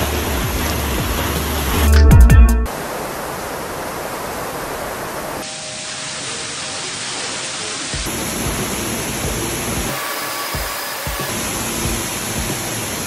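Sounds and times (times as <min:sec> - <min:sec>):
water gushing onto a train: 0:00.0 - 0:01.8, 0:02.7 - 0:13.0
water rushing and cascading: 0:00.0 - 0:13.0.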